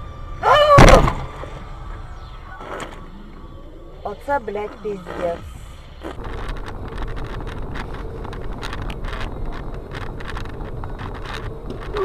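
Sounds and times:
car road and engine rumble: 0.0 - 12.0
wind noise on microphone: 6.1 - 12.0
small clicks and knocks: 6.2 - 12.0.

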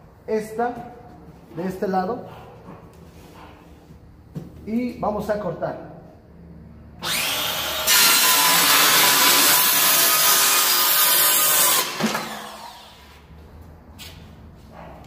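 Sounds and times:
circular saw cutting wood: 7.0 - 13.2.

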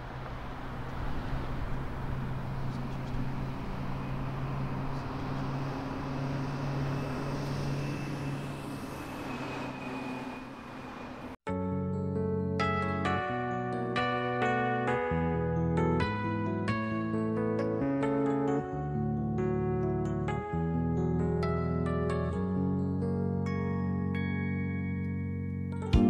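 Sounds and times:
piano-like music: 0.0 - 9.4, 11.5 - 26.0
cars passing: 0.0 - 11.4.

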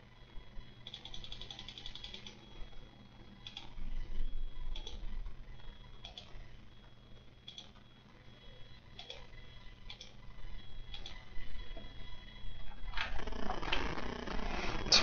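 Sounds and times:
steady low hum: 0.0 - 15.0
faint sharp clicking ticks: 7.4 - 7.7.

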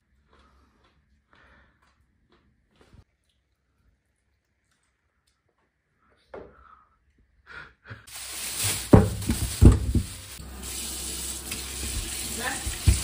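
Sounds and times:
plastic bag rustling: 8.1 - 10.4
tap water running: 8.1 - 13.0
fish thudding into steel sink: 8.6 - 10.2.

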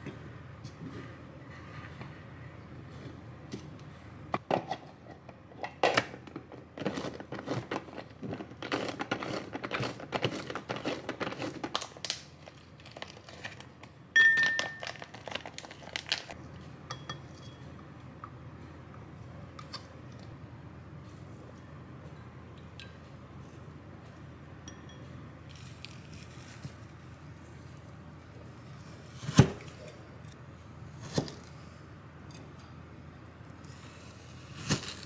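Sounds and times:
sharp ringing clink: 14.2 - 14.8.

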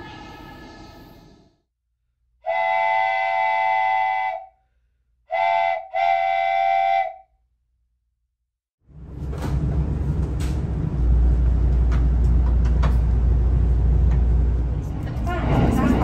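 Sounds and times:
train horn blasts: 2.5 - 4.5, 5.3 - 7.2.

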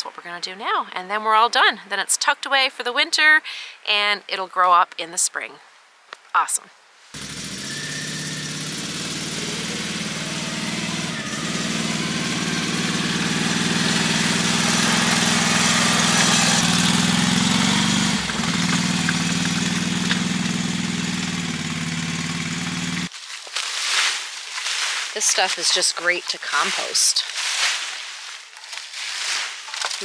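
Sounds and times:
engine running: 7.2 - 23.1.

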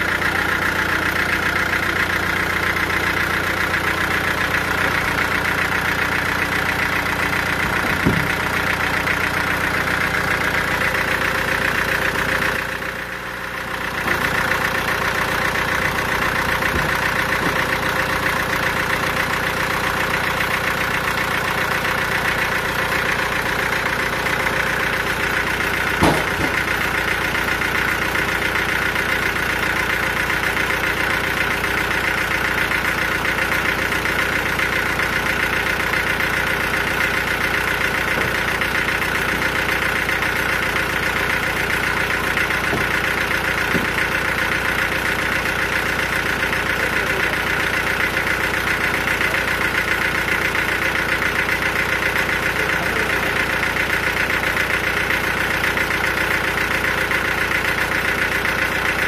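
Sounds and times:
sawmill machinery droning: 0.0 - 59.0
sharp knock: 26.0 - 26.6.

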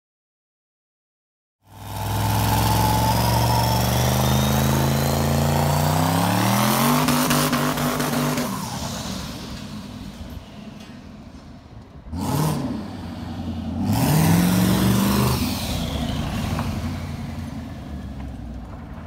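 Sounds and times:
car engine under hard throttle: 1.6 - 11.3, 11.9 - 19.0
thin rising turbo whistle: 2.0 - 9.6.

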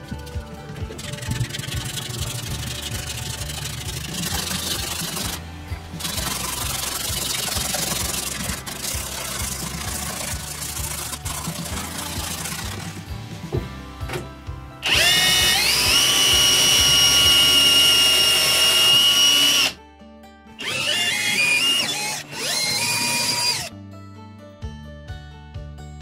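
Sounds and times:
background music: 0.0 - 26.0
cordless drill whining: 14.8 - 19.8, 20.6 - 23.7.

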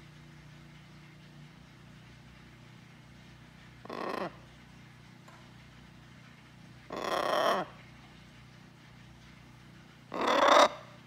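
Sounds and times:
macaw calling loudly: 6.9 - 7.7, 10.2 - 10.8.

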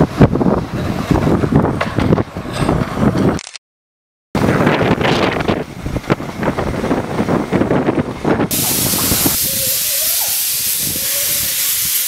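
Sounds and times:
steam hissing: 8.5 - 12.0
steam locomotive clanking: 8.5 - 12.0.

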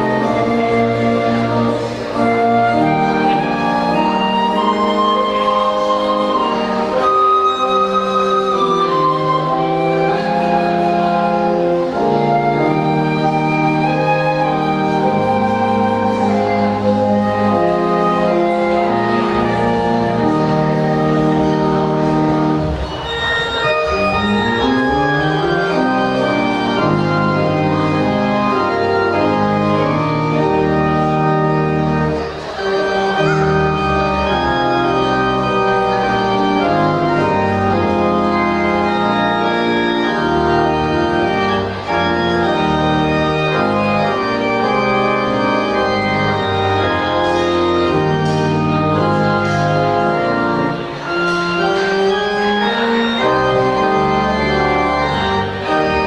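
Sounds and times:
flute playing: 0.0 - 27.8
church organ chords: 0.0 - 56.0.

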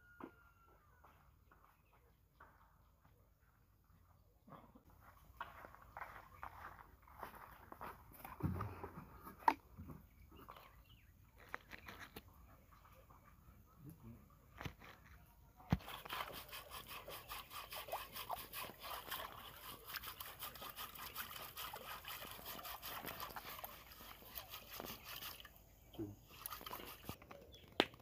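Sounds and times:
pot being scrubbed: 15.8 - 25.6, 26.2 - 27.2.

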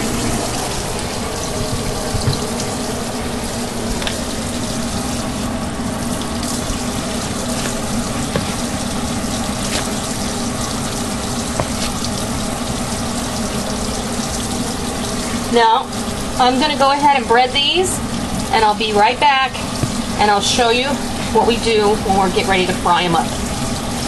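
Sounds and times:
faucet running into sink: 0.0 - 24.0
bowl knocking: 7.6 - 8.8, 11.6 - 12.0.

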